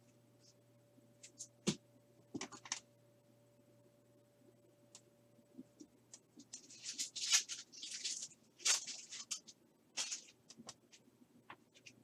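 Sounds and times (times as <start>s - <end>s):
foil wrapper tearing and crinkling: 6.5s - 10.4s.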